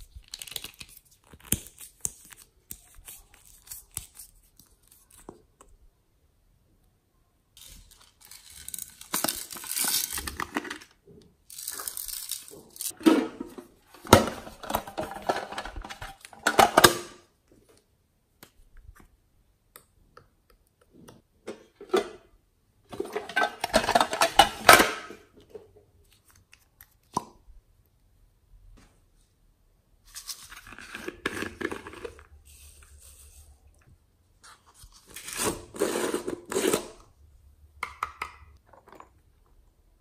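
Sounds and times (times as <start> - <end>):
plastic containers scraping and rattling: 10.1 - 11.0, 11.8 - 17.0, 22.9 - 25.5, 30.7 - 32.3.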